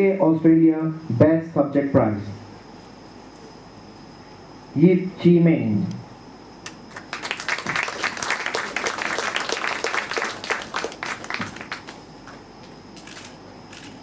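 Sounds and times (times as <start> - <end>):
audience applauding: 6.9 - 12.3.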